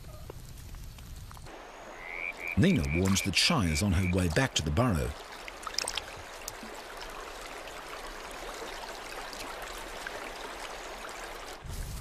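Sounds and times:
stream water trickling: 0:00.6 - 0:12.0.

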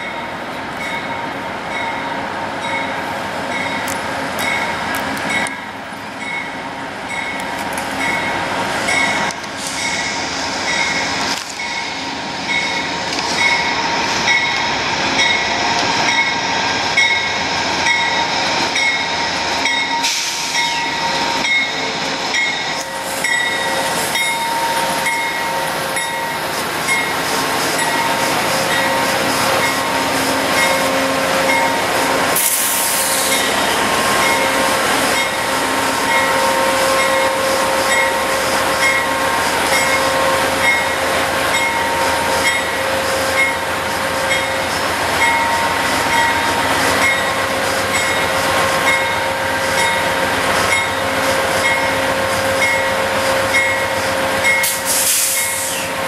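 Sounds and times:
train rolling past: 0:00.0 - 0:56.0
air hiss bursts: 0:20.0 - 0:20.7, 0:32.4 - 0:33.5, 0:54.6 - 0:56.0
bell ringing: 0:22.4 - 0:27.1.

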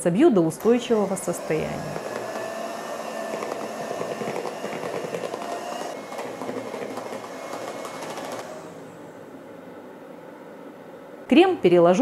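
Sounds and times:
electric hand mixer whipping cream: 0:00.6 - 0:09.2.

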